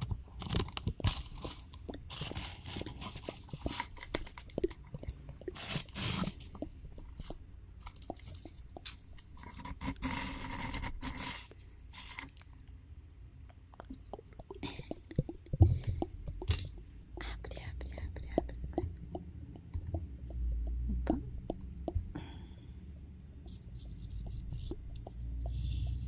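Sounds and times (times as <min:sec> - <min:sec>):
cardboard packaging crinkling: 0:00.0 - 0:04.7, 0:05.5 - 0:06.6.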